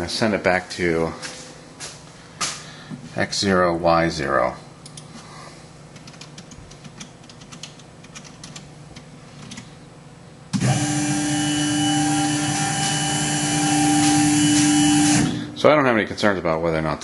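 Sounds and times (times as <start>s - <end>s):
computer keyboard keys clicking: 6.0s - 8.6s
stepper motors whining: 10.5s - 15.5s.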